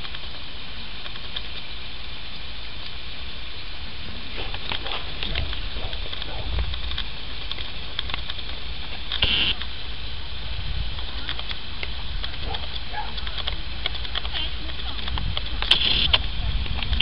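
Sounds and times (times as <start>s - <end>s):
wind on microphone: 3.7s - 17.0s
faint clicks: 4.4s - 9.8s, 10.9s - 17.0s.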